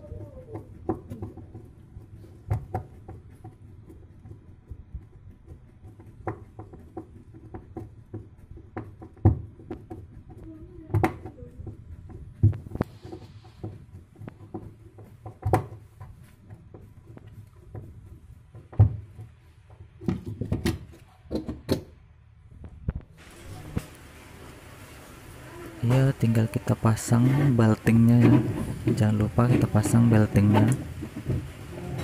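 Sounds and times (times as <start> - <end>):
screwdriver knocking on plastic pulley: 0.1 - 21.9.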